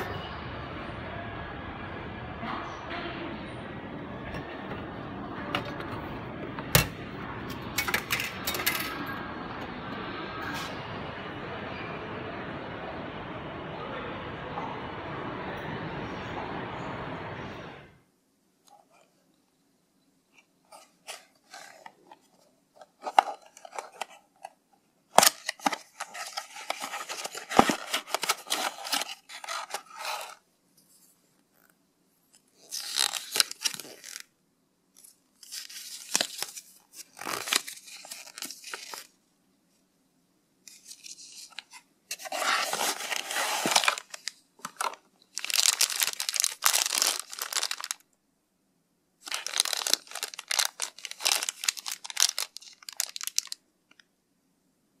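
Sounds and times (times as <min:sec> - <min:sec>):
cardboard and paper rustling: 0:20.7 - 0:31.2, 0:32.6 - 0:34.3, 0:35.0 - 0:39.2, 0:40.7 - 0:48.0, 0:49.2 - 0:53.6
plastic bag crinkling: 0:25.2 - 0:30.4, 0:32.5 - 0:34.3, 0:35.4 - 0:39.1, 0:40.7 - 0:48.1, 0:49.2 - 0:53.6.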